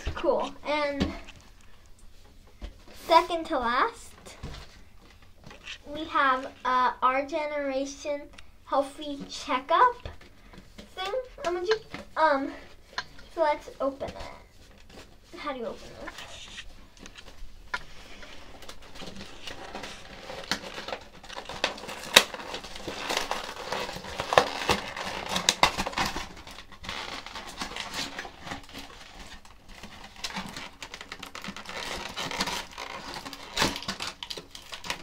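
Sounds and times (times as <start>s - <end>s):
plastic crinkling: 3.8s - 6.7s, 9.6s - 35.0s
cardboard rustling: 9.5s - 35.0s.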